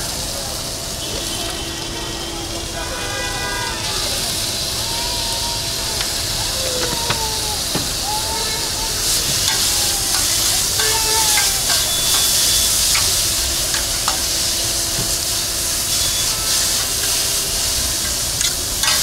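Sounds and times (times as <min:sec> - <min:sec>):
filling sizzling on a griddle: 0:00.0 - 0:19.0
metal spatula scraping griddle: 0:09.5 - 0:14.5, 0:16.0 - 0:19.0.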